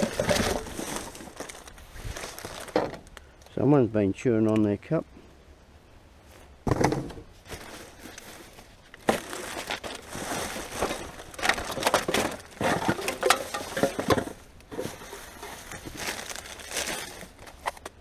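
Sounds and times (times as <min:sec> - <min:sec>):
plastic packaging crinkling: 0:00.0 - 0:03.2, 0:07.5 - 0:18.0.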